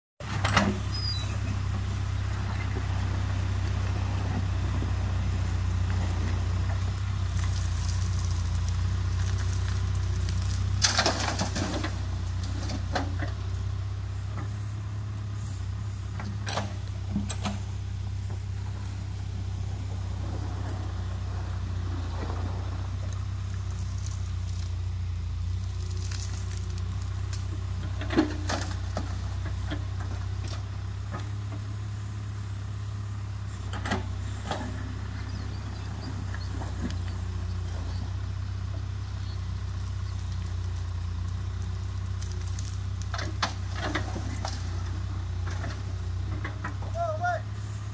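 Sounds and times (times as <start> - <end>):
bucket knocking and scraping gravel: 0.2 - 13.5, 40.6 - 47.0
diesel engine running at low revs: 0.2 - 47.9.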